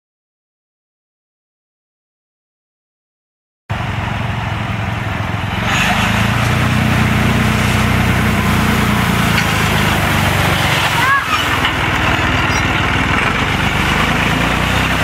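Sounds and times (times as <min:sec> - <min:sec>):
small tractor engine running: 0:03.7 - 0:15.0
chains scraping over gravel: 0:05.7 - 0:15.0.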